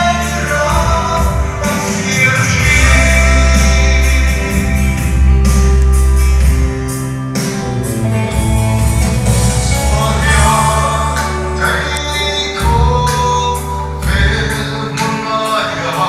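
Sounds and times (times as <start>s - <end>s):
man singing into a microphone: 0.0s - 5.2s, 9.8s - 16.0s
amplified band accompaniment: 0.0s - 16.0s.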